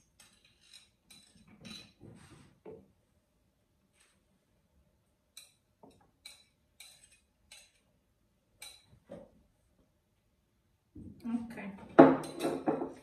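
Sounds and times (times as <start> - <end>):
knife scraping a plate: 0.2 - 2.0, 6.2 - 7.8.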